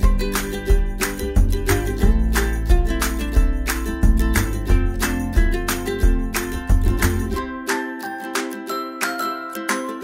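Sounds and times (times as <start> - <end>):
steady beat with strong bass: 0.0 - 7.5
strummed guitar: 0.0 - 10.0.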